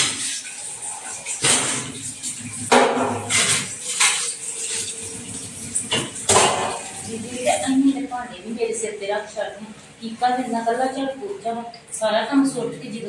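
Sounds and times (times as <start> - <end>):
steel utensils clattering in sink: 0.0 - 7.8.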